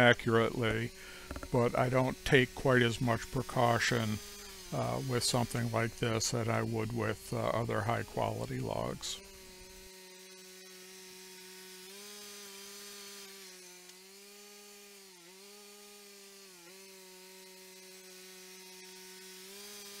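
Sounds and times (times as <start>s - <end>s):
sawmill engine running: 0.0s - 11.3s
band saw sawing: 0.0s - 20.0s.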